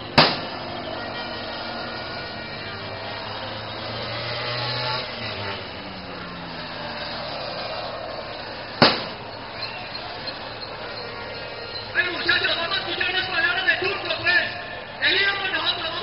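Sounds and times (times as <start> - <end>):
dense noisy din: 0.0 - 16.0
loud sharp bang: 0.1 - 0.6, 8.8 - 9.2.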